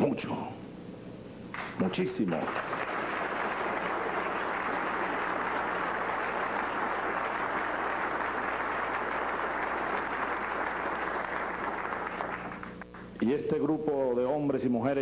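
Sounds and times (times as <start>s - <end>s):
audience applauding: 1.8s - 13.1s.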